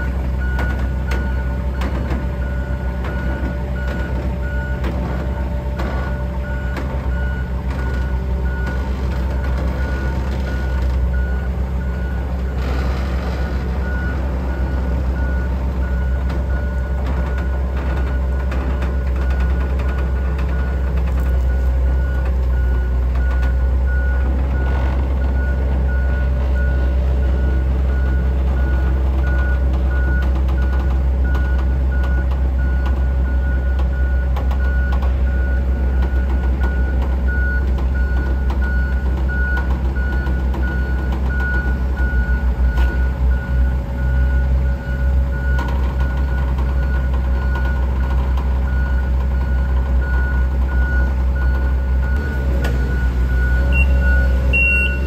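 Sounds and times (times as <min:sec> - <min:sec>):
forklift engine rumbling: 0:00.0 - 0:55.0
high warning beeps: 0:48.7 - 0:55.0.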